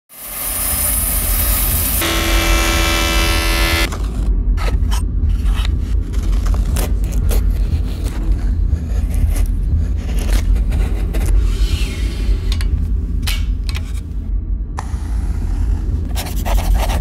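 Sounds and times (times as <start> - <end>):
steady deep rumble: 1.7 - 17.0
held tone: 2.0 - 3.9.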